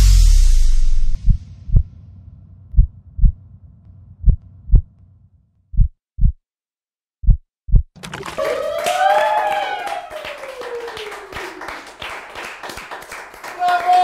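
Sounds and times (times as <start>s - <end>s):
heartbeat thumps: 0.8s - 2.0s, 2.7s - 3.4s, 4.1s - 5.0s, 5.7s - 6.4s, 7.2s - 8.0s.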